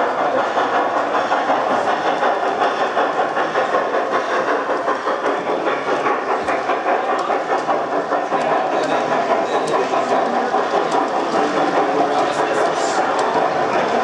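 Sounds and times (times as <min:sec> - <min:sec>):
model train wheels clicking: 0:00.0 - 0:14.0.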